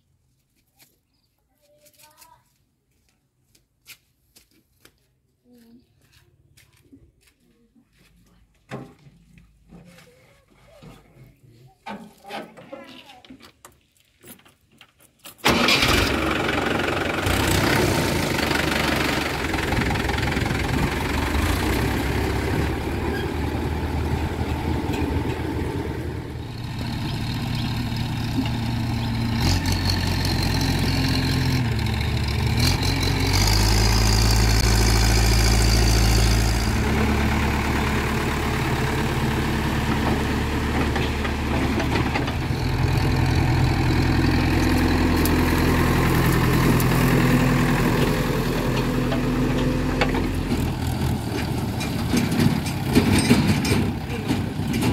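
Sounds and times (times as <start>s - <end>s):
backhoe diesel engine running: 15.4s - 54.9s
tractor diesel engine idling: 15.4s - 54.9s.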